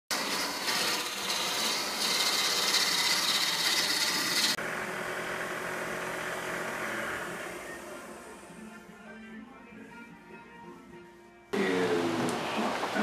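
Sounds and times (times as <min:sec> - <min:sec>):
lathe tool scraping wood: 0:00.1 - 0:04.6.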